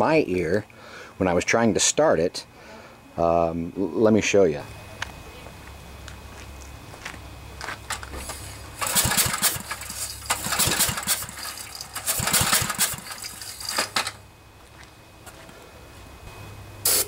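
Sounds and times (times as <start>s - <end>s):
rhythmic puffing of air: 8.0s - 14.2s
engine cranking without firing: 8.2s - 14.2s.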